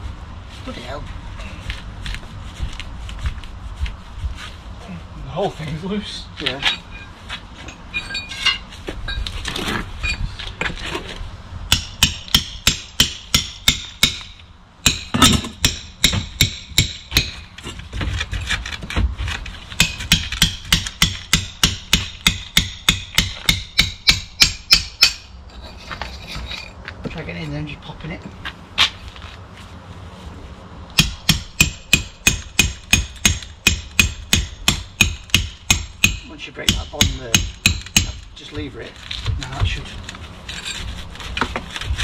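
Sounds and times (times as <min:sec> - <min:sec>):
scraping on stone: 0:25.5 - 0:26.8, 0:38.8 - 0:42.0.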